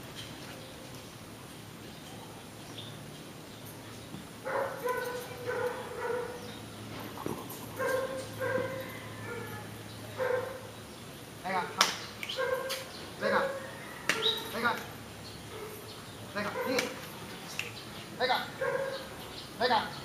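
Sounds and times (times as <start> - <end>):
dog barking: 4.5 - 6.5, 7.8 - 9.6, 10.2 - 10.7, 12.4 - 13.6, 16.5 - 16.9, 18.6 - 19.1.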